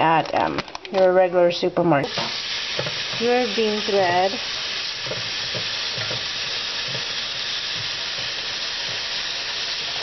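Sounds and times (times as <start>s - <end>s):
tap water pouring into container: 2.1s - 10.0s.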